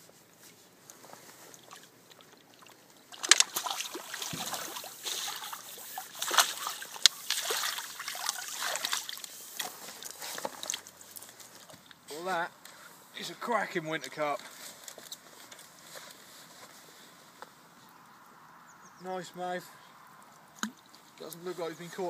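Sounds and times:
fish splashing in water: 1.5s - 11.0s.

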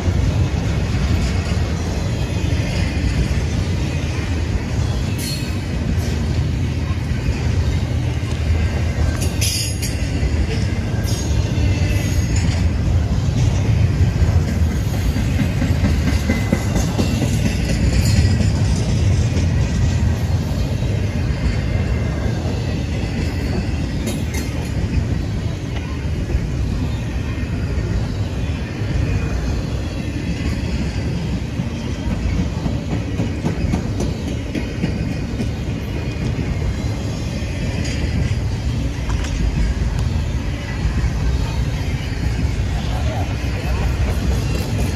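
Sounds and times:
train wheels rumbling on rails: 0.0s - 44.9s
sharp clicks of train wheels: 8.0s - 25.9s, 30.4s - 40.2s, 43.6s - 44.9s.

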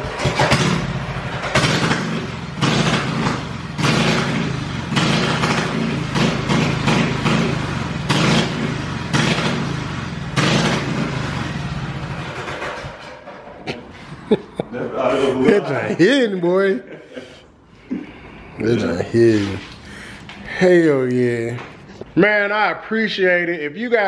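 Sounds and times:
small gas engine revving: 0.0s - 13.1s.

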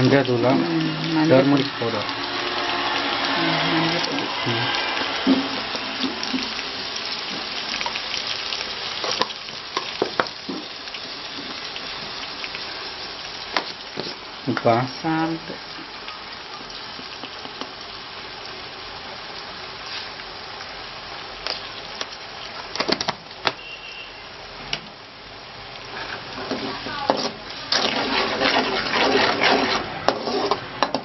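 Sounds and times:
oil sizzling and crackling: 0.0s - 31.0s.

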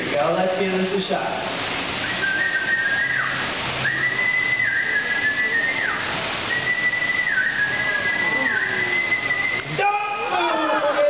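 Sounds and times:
falling water rushing: 0.0s - 11.0s
person whistling long high notes: 2.0s - 10.4s.

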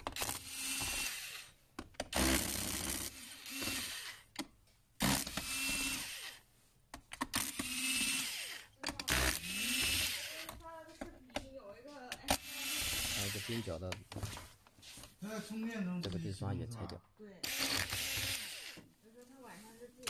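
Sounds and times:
electric screwdriver running: 0.0s - 4.3s, 5.0s - 6.4s, 7.2s - 10.6s, 12.1s - 13.8s, 17.4s - 18.9s.

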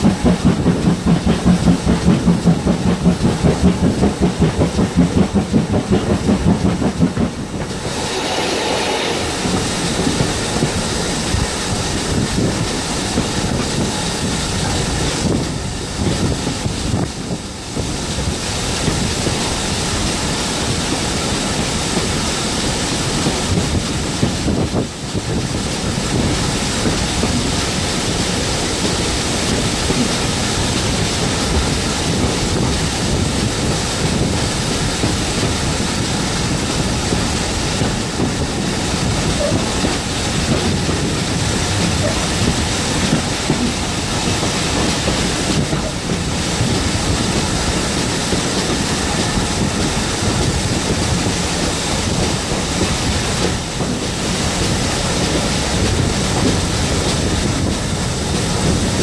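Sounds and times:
steam engine exhaust beats: 0.0s - 59.0s
air rushing past window: 5.7s - 15.4s.

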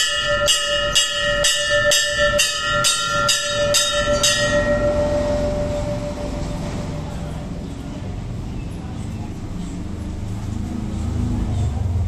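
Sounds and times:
temple bell ringing: 0.0s - 8.3s.

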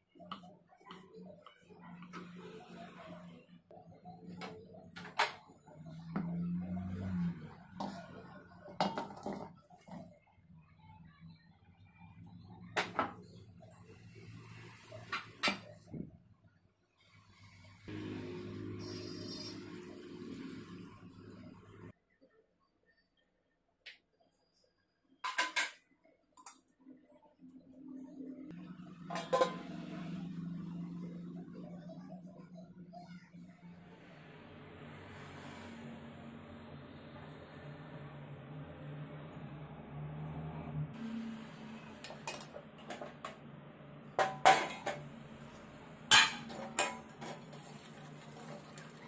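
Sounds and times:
metal cookware clinking: 25.2s - 25.8s, 29.0s - 29.9s, 44.2s - 45.1s, 46.1s - 49.0s
metal kitchenware clanking: 25.2s - 25.8s, 29.0s - 29.9s, 44.0s - 45.2s, 46.0s - 49.0s.

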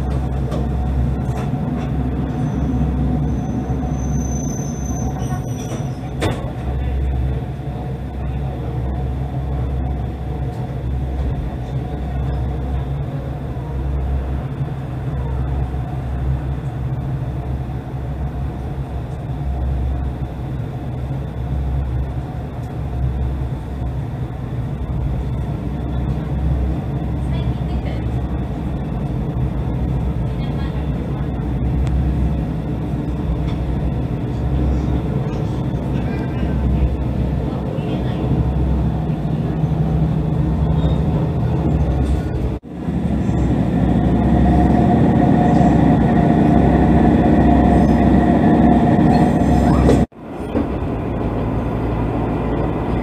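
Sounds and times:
rail rumble: 0.0s - 53.0s
railcar engine drone: 0.0s - 53.0s
high squeal: 2.2s - 6.2s.

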